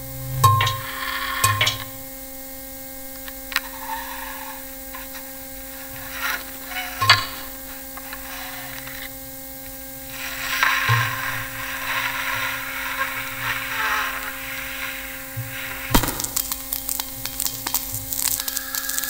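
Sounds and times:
electrical hum of held tones: 0:00.0 - 0:19.0
sharp clicks and crackles: 0:15.9 - 0:19.0.

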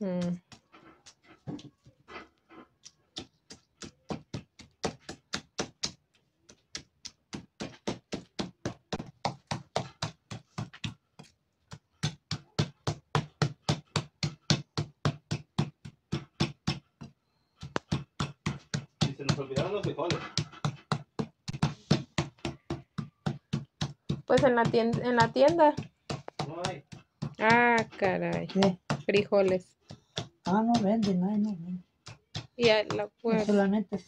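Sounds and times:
knife chopping on leaf: 0:06.7 - 0:33.6.

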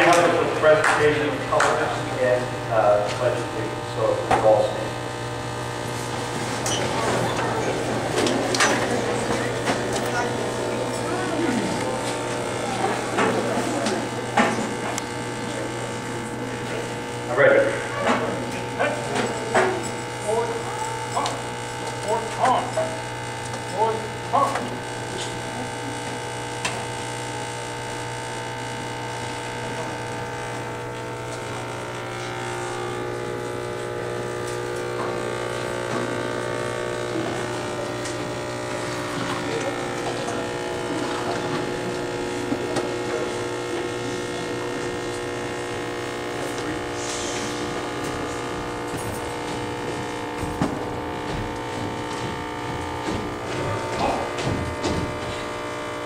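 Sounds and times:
electrical buzz: 0:00.0 - 0:56.0
faint crowd murmur: 0:05.8 - 0:23.1, 0:24.3 - 0:27.1, 0:29.4 - 0:33.1, 0:34.8 - 0:50.1, 0:53.3 - 0:55.6.

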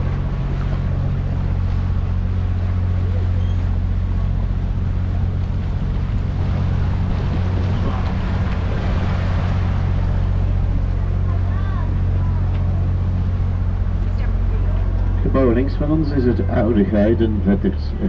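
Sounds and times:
boat motor humming: 0:00.0 - 0:18.0
water noise: 0:00.0 - 0:18.0
wind noise: 0:04.6 - 0:10.9.

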